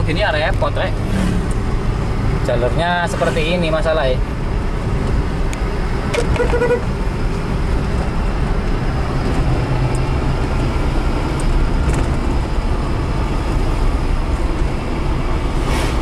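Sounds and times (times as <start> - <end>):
car engine running steadily: 0.0 - 16.0
road and tyre noise: 0.0 - 16.0
car horn toot: 6.1 - 6.9.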